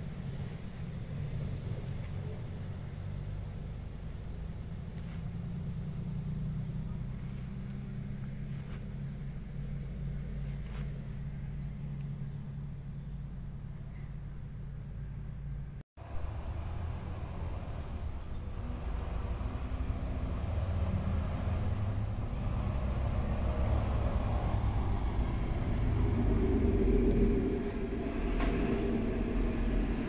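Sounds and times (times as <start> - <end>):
vehicle engine idling: 0.0 - 30.0
insect chirping: 0.1 - 15.8.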